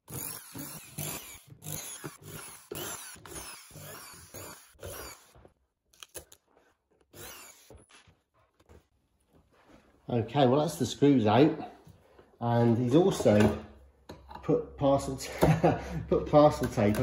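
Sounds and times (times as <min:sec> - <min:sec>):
screws clicking and knocking: 0:00.0 - 0:05.4
power drill bursts: 0:00.1 - 0:05.4, 0:07.1 - 0:07.8.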